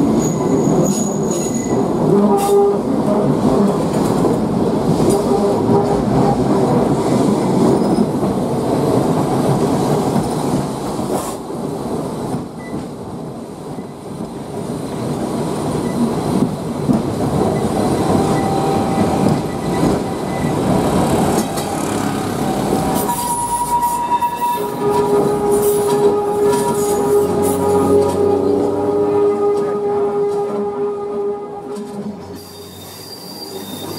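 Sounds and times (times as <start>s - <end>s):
tram wheels rumbling on rail: 0.0s - 33.9s
faint wheel squeal: 32.4s - 33.9s.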